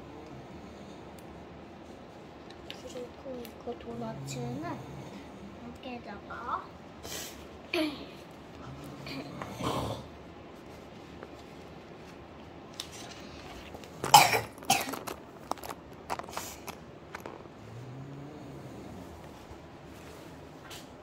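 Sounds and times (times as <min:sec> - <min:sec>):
sticker sheet crackling: 0:12.8 - 0:17.5
person coughing: 0:14.0 - 0:15.1.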